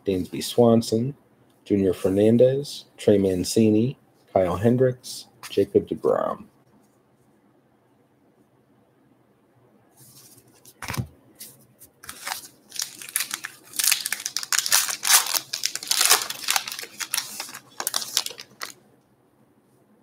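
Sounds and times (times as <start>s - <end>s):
foil wrapper tearing and crinkling: 12.0s - 18.8s.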